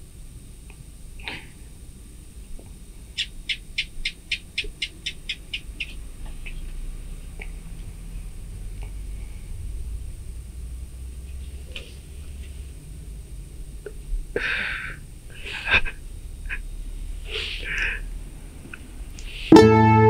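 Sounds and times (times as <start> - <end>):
sniffs and gasping breaths: 14.3 - 16.6, 17.2 - 18.1
man weeping: 15.4 - 16.6
plucked-string music: 19.5 - 20.0.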